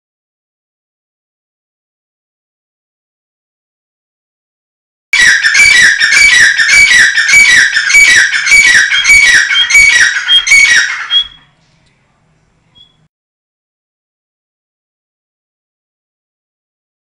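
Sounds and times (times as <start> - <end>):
francolin calling: 5.2 - 11.6, 12.7 - 13.0.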